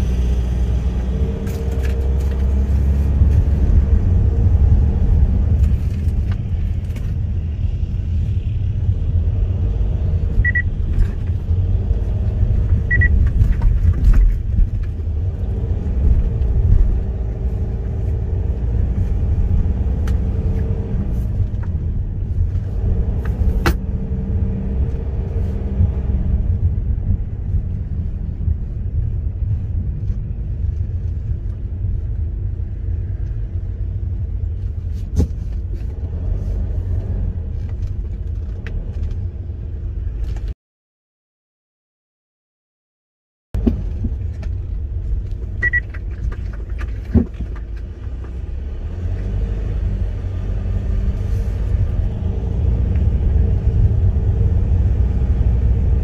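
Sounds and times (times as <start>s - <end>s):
road and engine rumble in car: 0.0s - 40.6s, 43.6s - 56.0s
high beeps: 10.4s - 10.7s, 12.9s - 13.2s, 45.6s - 45.8s.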